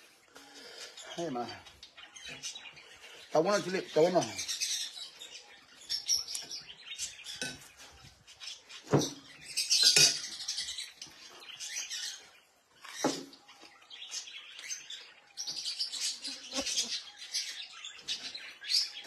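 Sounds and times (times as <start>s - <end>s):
caged birds chirping: 0.0s - 19.0s
clinks and eating sounds: 6.0s - 8.0s, 9.0s - 11.4s.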